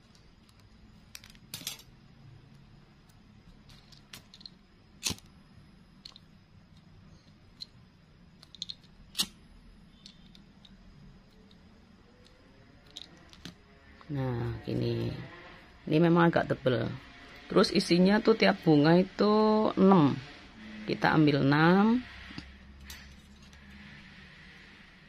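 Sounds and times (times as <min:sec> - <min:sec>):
small tool clicks: 0:08.4 - 0:09.4.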